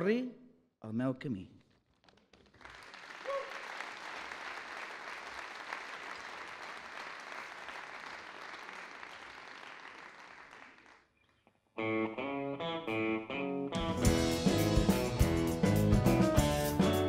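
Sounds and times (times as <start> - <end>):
audience applauding: 2.0 - 11.1.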